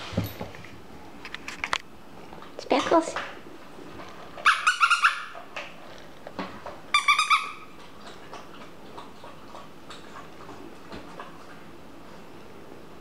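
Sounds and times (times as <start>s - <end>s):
puppy yelping: 4.4s - 5.5s, 6.9s - 7.8s.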